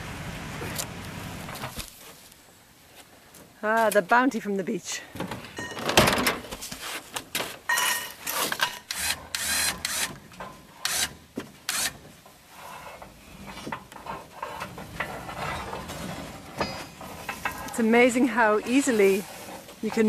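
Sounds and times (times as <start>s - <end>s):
wood and chain scraping and rattling: 1.4s - 2.3s, 5.2s - 20.0s.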